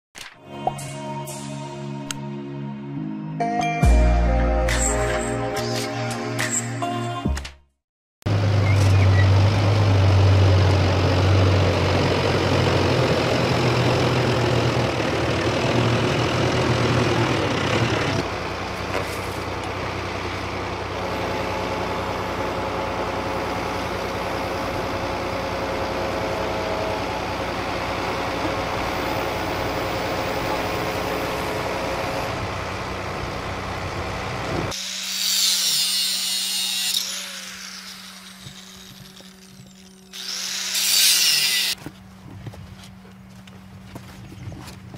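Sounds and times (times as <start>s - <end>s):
diesel engine running: 8.3s - 35.0s, 36.7s - 44.9s.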